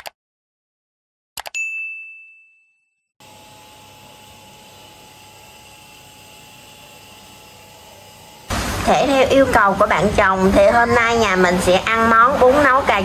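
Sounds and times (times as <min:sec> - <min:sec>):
bright bell ding: 0:01.6 - 0:03.0.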